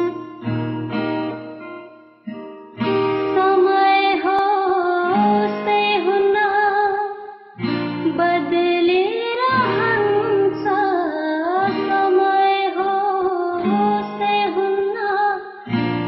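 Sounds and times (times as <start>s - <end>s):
acoustic guitar strumming: 0.0s - 16.0s
woman singing: 3.0s - 15.8s.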